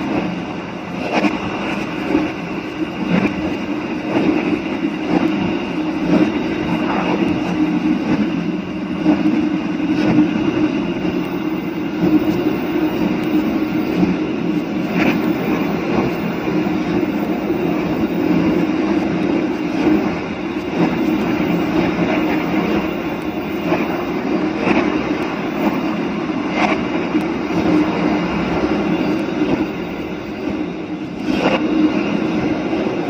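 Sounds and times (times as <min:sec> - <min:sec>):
rail clacks: 0:00.0 - 0:33.0
train wheels rumbling on rails: 0:00.0 - 0:33.0.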